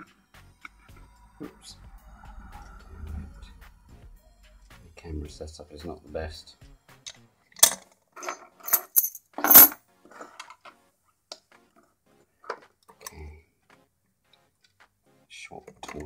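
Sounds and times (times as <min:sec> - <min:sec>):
metal lock picks clinking: 0:07.6 - 0:09.8.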